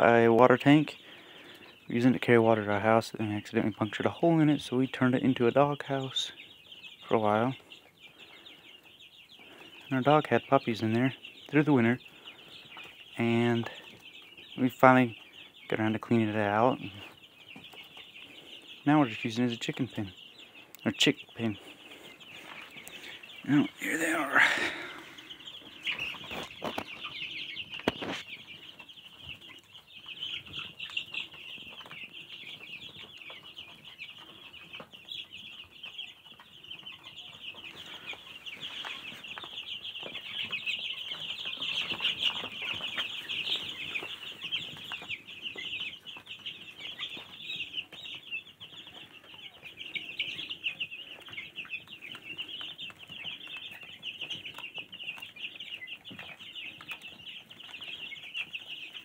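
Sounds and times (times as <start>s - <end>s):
chicks peeping: 0.0s - 59.0s.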